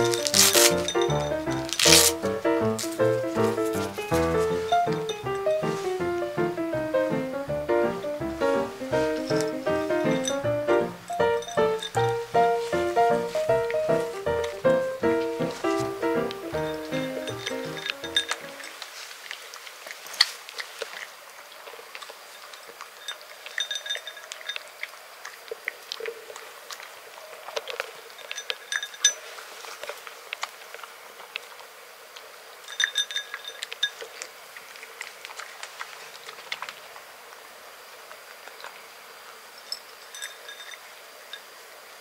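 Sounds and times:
cat crunching dry kibble: 0.0s - 5.2s.

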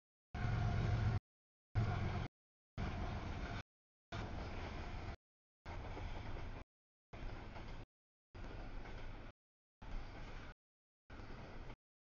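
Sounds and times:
freight train rumbling past: 0.4s - 1.2s, 1.8s - 3.6s, 4.2s - 6.6s.

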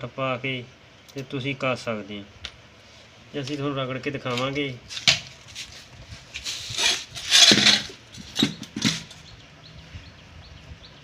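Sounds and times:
tools scraping and rustling: 4.2s - 9.3s.

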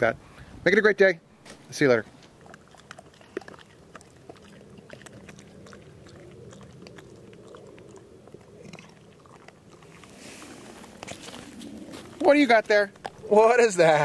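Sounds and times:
dog chewing a treat: 2.2s - 12.1s.

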